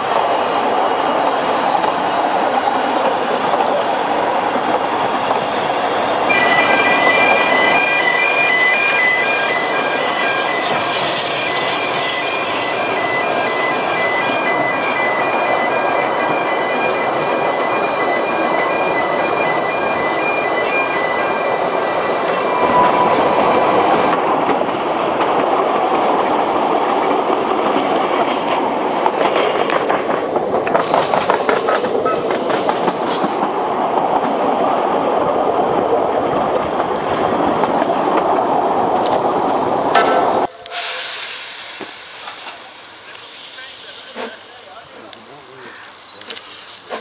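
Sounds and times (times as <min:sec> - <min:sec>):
train running noise: 0:00.0 - 0:47.0
train wheels squealing on curve: 0:05.2 - 0:29.9, 0:30.7 - 0:33.8, 0:37.0 - 0:38.6, 0:39.6 - 0:47.0.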